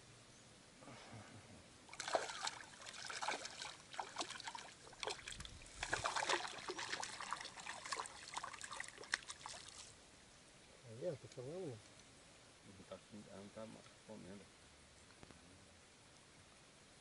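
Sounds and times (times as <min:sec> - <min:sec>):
water splashing and trickling: 0:01.9 - 0:10.0.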